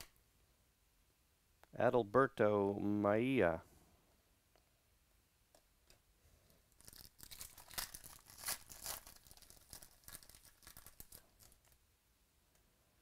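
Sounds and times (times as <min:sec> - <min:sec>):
foil wrapper tearing and crinkling: 0:06.8 - 0:11.8.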